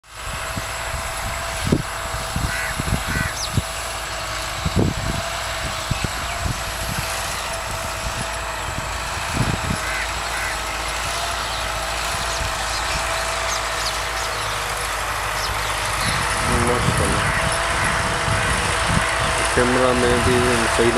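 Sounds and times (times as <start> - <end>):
tractor engine running: 0.0 - 20.9
faint bird calls: 2.4 - 4.0, 9.7 - 19.6.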